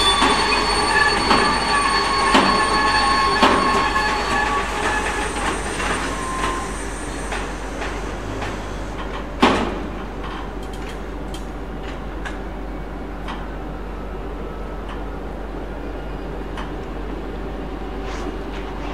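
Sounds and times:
train wheels squealing: 0.0 - 9.2
freight train rolling past: 0.0 - 18.9.

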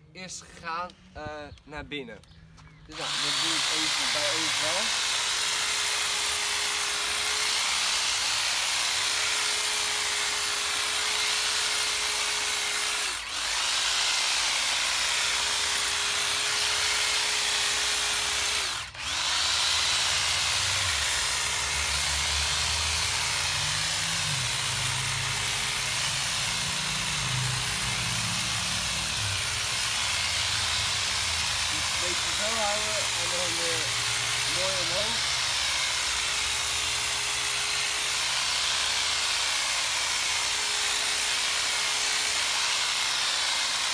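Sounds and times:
electric hedge trimmer whining: 2.6 - 43.9.

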